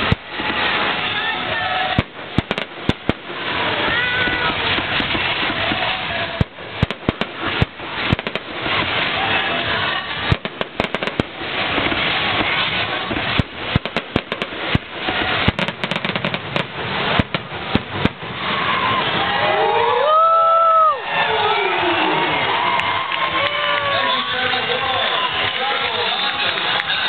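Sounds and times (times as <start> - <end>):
firework shells bursting: 0.0 - 19.1
continuous noisy background: 0.0 - 27.0.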